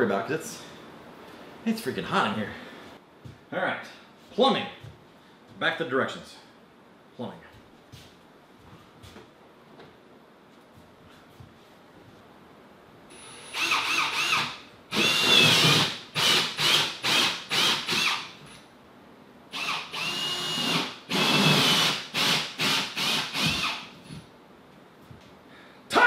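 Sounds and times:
cordless drill bursts: 0:13.1 - 0:18.4, 0:19.5 - 0:23.9.

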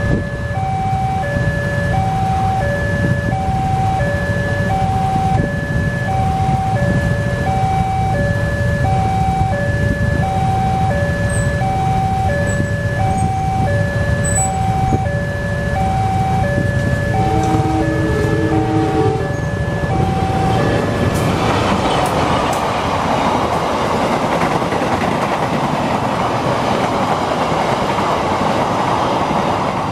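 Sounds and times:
two-tone crossing bell chime: 0:00.0 - 0:21.0
train horn: 0:17.1 - 0:20.6.

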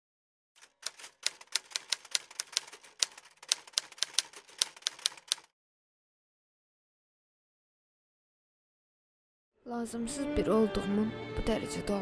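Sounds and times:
typewriter keys clacking: 0:00.6 - 0:05.5.

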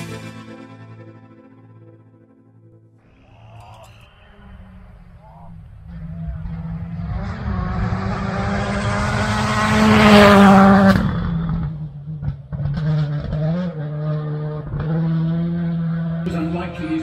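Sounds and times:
rally car engine revving: 0:04.0 - 0:17.0.

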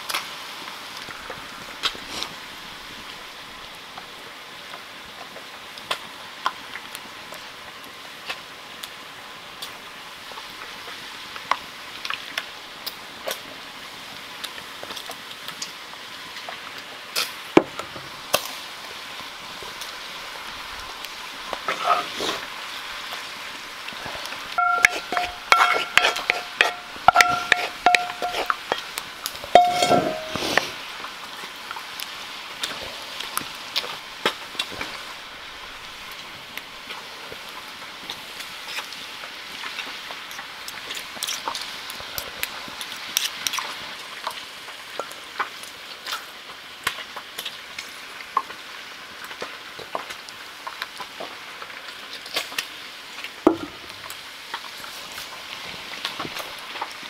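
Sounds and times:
wooden spoon scraping skillet: 0:01.8 - 0:02.5, 0:20.8 - 0:23.2, 0:23.8 - 0:31.0
cheese sprinkling rustles: 0:19.5 - 0:31.2.

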